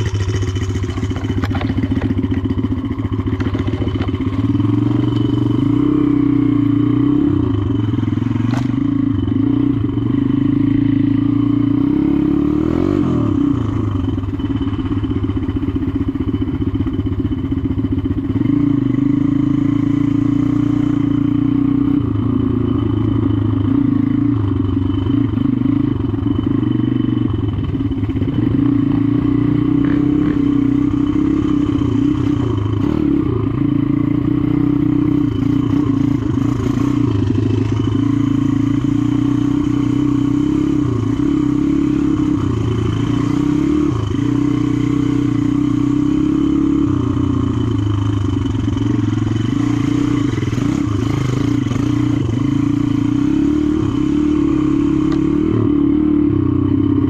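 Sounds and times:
dirt bike engine revving: 3.3s - 14.8s, 28.2s - 56.6s.

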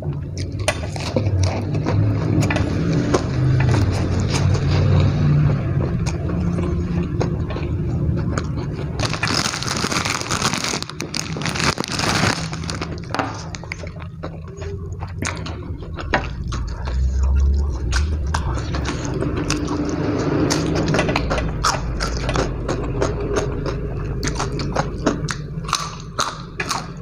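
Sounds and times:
man chewing crunchy food: 0.0s - 27.0s.

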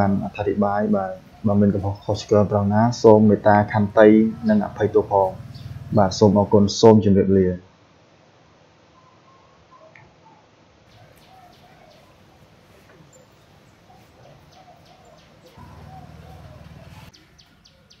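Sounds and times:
birds chirping: 0.0s - 7.0s, 10.9s - 18.0s
low buzz: 3.3s - 6.6s.

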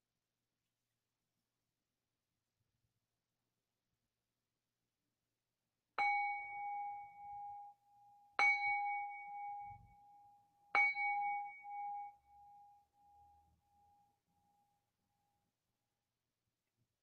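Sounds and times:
bowl bell ringing: 6.0s - 7.7s, 8.4s - 10.1s, 10.8s - 13.4s.

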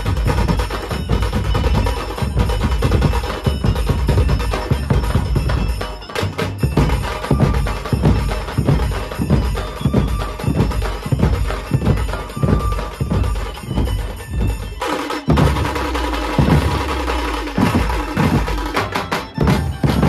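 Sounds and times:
drum band playing: 0.0s - 20.0s
heavy bass drum strokes: 6.8s - 20.0s.

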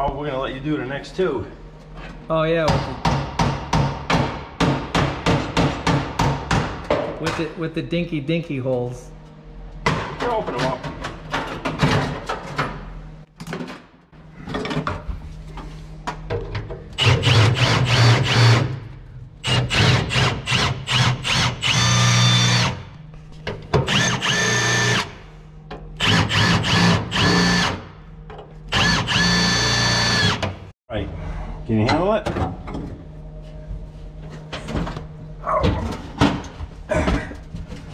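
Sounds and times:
drill boring through steel: 17.0s - 18.7s, 19.4s - 22.8s, 23.9s - 25.1s, 26.0s - 27.8s, 28.7s - 30.4s.

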